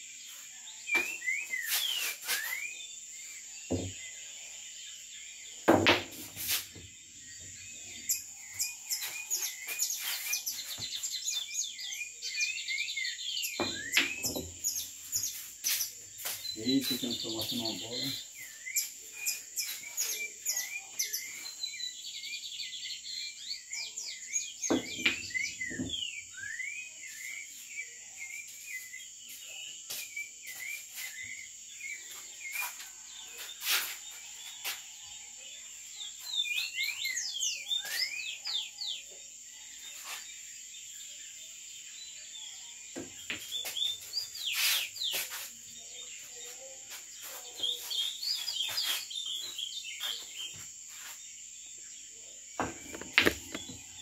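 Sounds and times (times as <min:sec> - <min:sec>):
pool balls clicking: 0:52.6 - 0:53.8.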